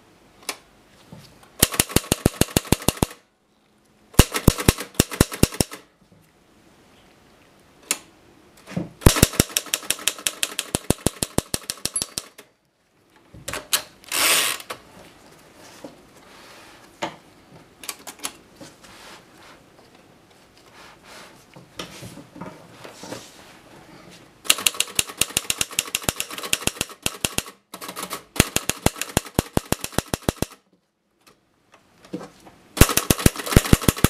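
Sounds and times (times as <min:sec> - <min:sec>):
typewriter key clacks: 0:09.1 - 0:12.4, 0:24.5 - 0:30.6.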